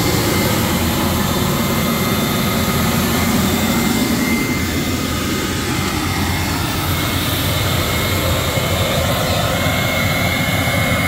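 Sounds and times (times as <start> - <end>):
thin high whine: 0.0 - 11.0
tractor engine running: 0.0 - 11.0.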